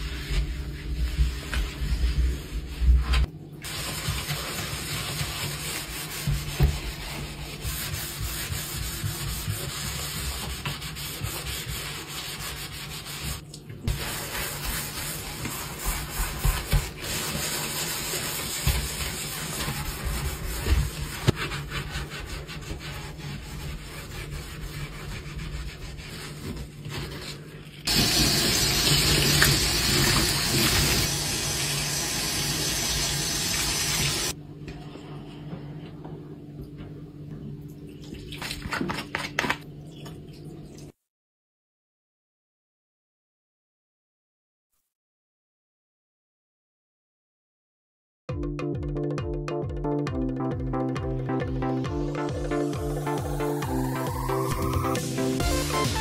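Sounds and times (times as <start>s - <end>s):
sponge scrubbing steel sink: 0.0s - 34.4s, 52.5s - 56.0s
tap water running into sink: 27.9s - 34.3s.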